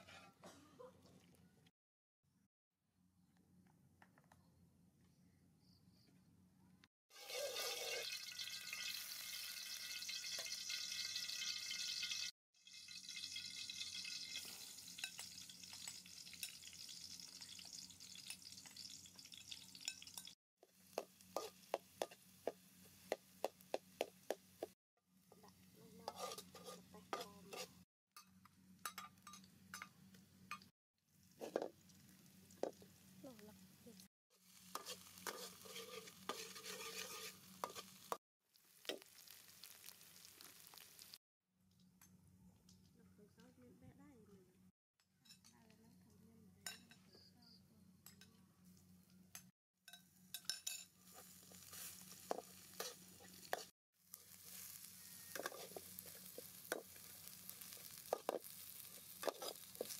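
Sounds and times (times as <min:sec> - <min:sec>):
metal spatula scraping a wok: 0:07.1 - 0:12.3, 0:26.0 - 0:27.8, 0:34.5 - 0:38.2, 0:50.3 - 0:59.9
oil sizzling in a wok: 0:07.1 - 0:27.9, 0:31.1 - 0:41.2, 0:49.9 - 0:59.9.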